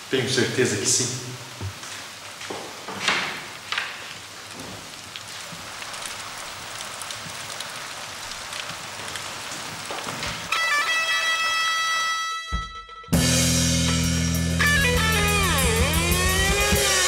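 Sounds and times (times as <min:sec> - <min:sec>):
steady hiss: 0:00.0 - 0:10.5.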